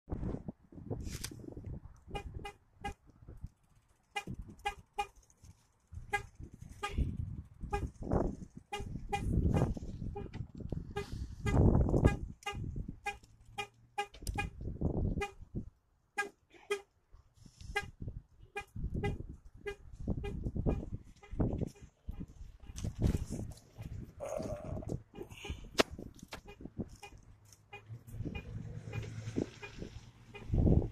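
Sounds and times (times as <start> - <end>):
car horn chirps: 6.1 - 7.9, 10.9 - 14.6, 16.2 - 16.9, 26.4 - 30.7.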